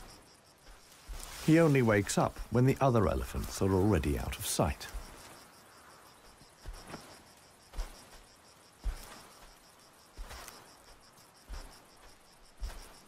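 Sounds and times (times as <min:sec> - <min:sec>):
crickets chirping: 0:00.0 - 0:13.0.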